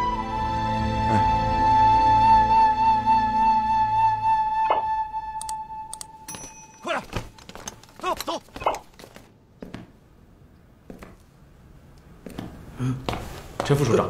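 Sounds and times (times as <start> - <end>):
held flute note: 0.0 - 6.4.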